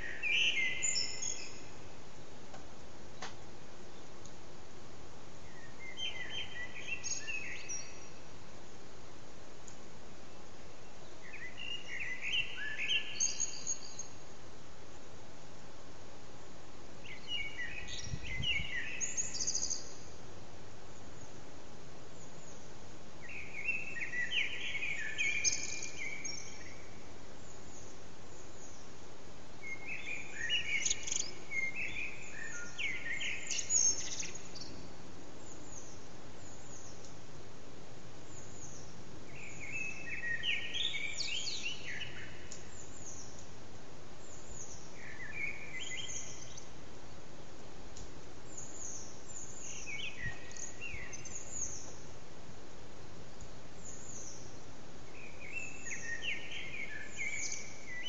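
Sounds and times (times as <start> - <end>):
blackbird singing: 0.0 - 1.8, 5.5 - 8.2, 11.2 - 14.2, 17.0 - 20.1, 23.2 - 28.9, 29.6 - 37.0, 38.3 - 43.4, 44.2 - 46.7, 48.5 - 52.0, 55.2 - 58.0.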